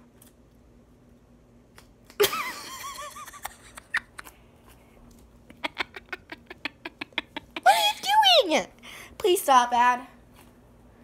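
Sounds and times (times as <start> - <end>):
girl giggling: 2.2 - 4.3, 5.5 - 8.2.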